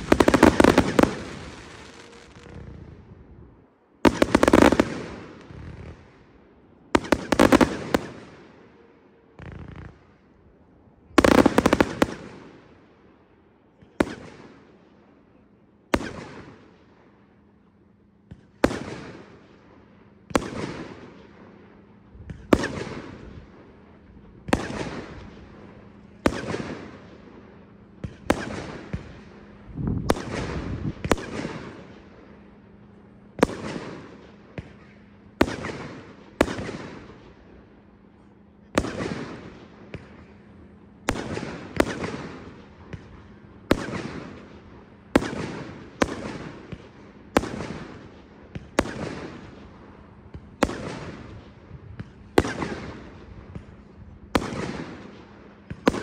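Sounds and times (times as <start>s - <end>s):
firework aerial bursts: 0.0s - 6.2s, 7.0s - 8.6s.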